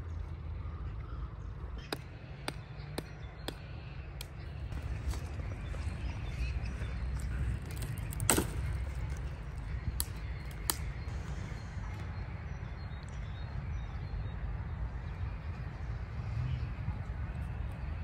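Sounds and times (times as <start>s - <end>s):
wind rumble on microphone: 4.2s - 18.0s
sticks snapping: 7.2s - 11.1s.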